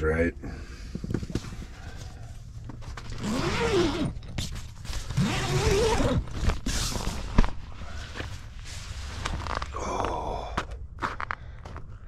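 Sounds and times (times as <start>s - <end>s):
zipper pulled: 3.0s - 7.5s.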